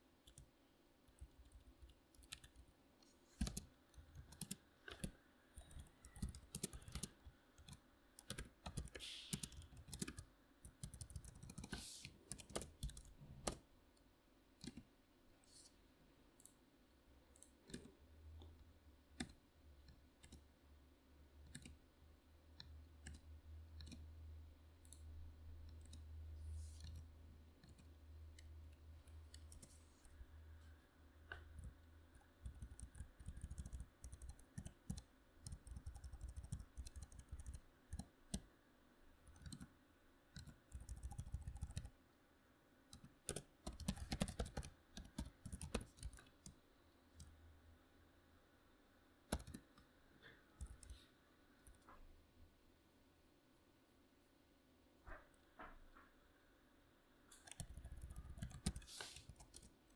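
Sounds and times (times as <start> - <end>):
low steady hum: 0.0 - 59.9
computer keyboard key clicks: 3.4 - 3.6, 4.2 - 11.7, 12.3 - 13.6, 32.4 - 38.4, 39.3 - 39.7, 40.4 - 41.9, 42.9 - 46.6, 49.3 - 49.7, 57.3 - 59.7.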